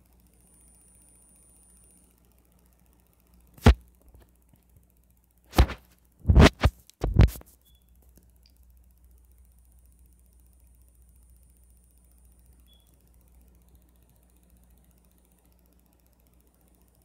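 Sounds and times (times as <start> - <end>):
fingers tapping touchscreen: 3.6 - 3.8, 5.5 - 7.4.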